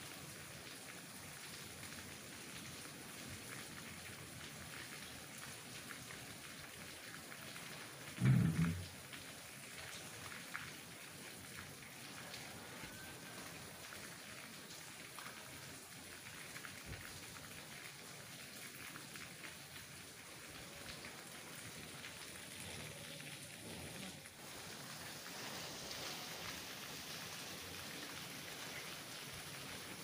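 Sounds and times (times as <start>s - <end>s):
steady rain falling: 0.0s - 30.0s
raindrops ticking nearby: 0.1s - 30.0s.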